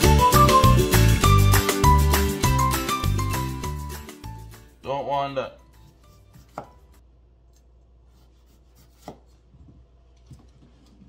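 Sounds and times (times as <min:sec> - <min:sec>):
knife chopping on cutting board: 0:05.8 - 0:07.0, 0:08.1 - 0:09.5.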